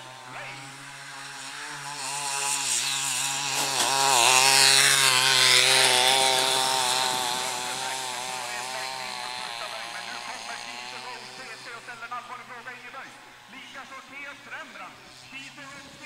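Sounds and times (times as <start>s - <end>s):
motorized lure whining: 0.0s - 11.7s.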